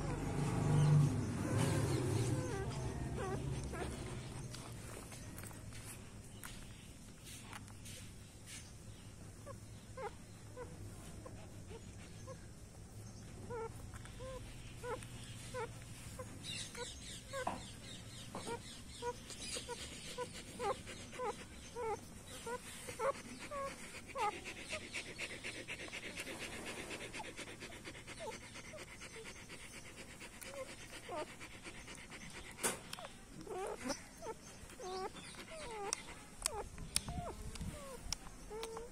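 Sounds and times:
puppies squeaking and whimpering: 0.0s - 5.1s, 9.4s - 12.6s, 13.2s - 38.9s
fast rhythmic breathing: 18.7s - 37.2s.

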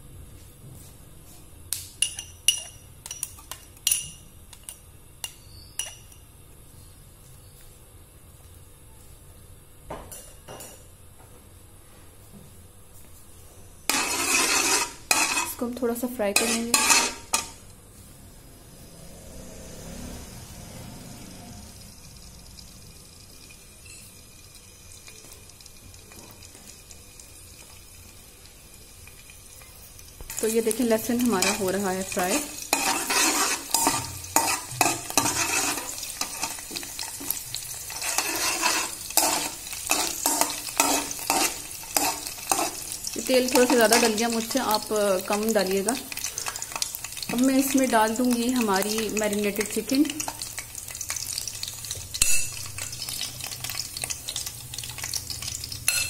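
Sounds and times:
metal utensil clinking glass bowl: 2.0s - 4.8s, 52.2s - 53.2s
garlic sizzling in hot oil: 13.8s - 17.6s, 19.8s - 56.0s.

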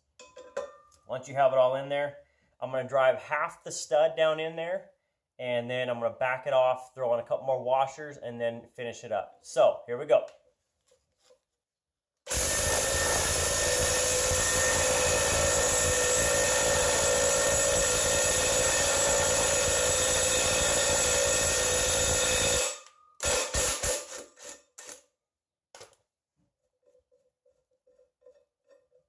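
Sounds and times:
impact wrench running: 12.3s - 25.1s.

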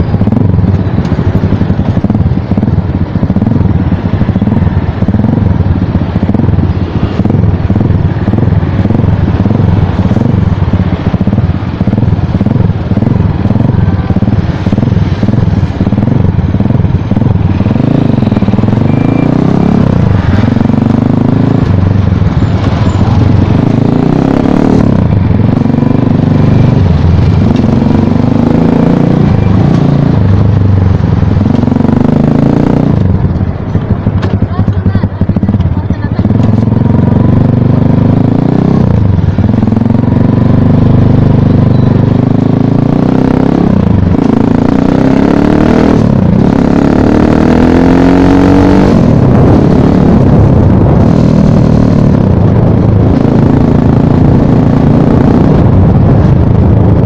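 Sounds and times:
dirt bike engine revving: 11.9s - 33.0s, 42.2s - 52.4s.

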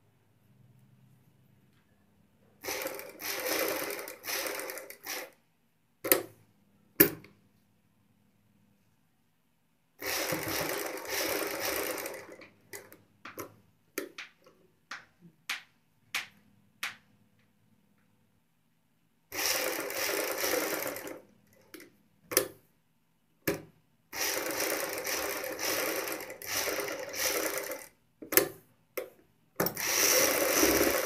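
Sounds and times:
sewing machine stitching: 2.6s - 5.4s, 10.0s - 13.0s, 19.3s - 21.8s, 24.2s - 28.0s, 29.6s - 31.0s.

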